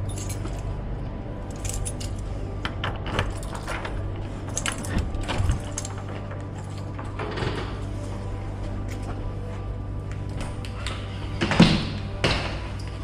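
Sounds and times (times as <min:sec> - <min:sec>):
light metallic clinking: 0:00.0 - 0:00.8
steady low hum: 0:00.0 - 0:13.0.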